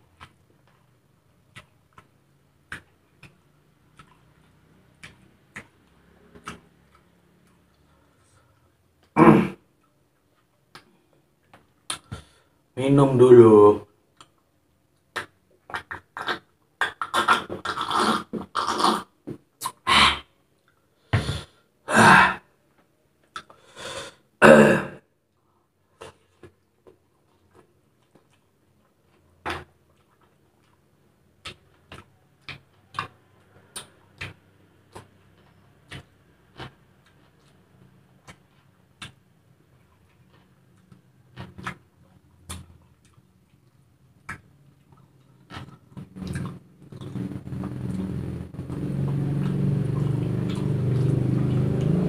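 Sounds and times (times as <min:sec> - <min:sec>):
chewing smacks: 0:00.0 - 0:09.2, 0:26.0 - 0:52.0
person sipping and gulping: 0:15.8 - 0:20.3, 0:44.9 - 0:52.0.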